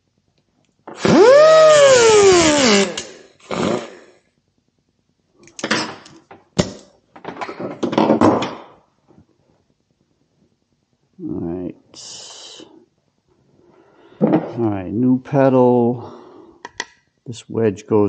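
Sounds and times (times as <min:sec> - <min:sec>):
squeak rising and falling in pitch: 0:01.0 - 0:03.0.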